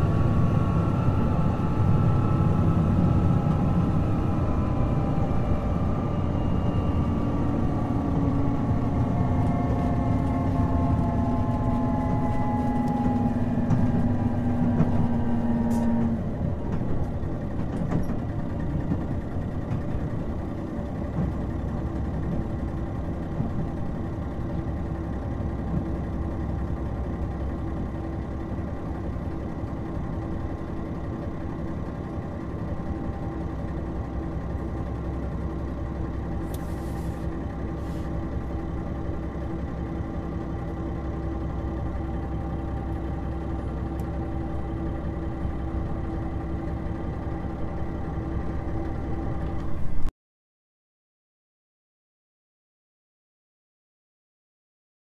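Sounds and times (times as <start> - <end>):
diesel engine idling: 7.0 - 49.6.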